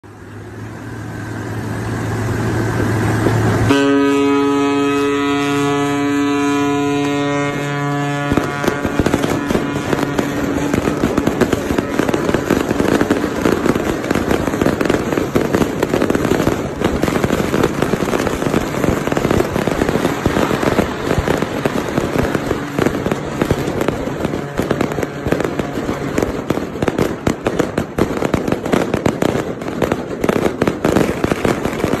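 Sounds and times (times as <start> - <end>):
low drone: 0.0 - 26.5
firecrackers crackling: 0.0 - 32.0
ship's horn blast: 0.9 - 15.4, 16.0 - 26.5.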